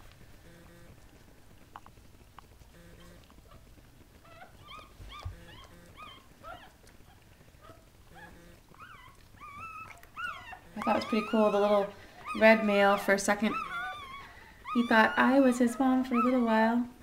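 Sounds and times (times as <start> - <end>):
puppy squeaking cries: 4.2 - 6.8, 7.6 - 16.7.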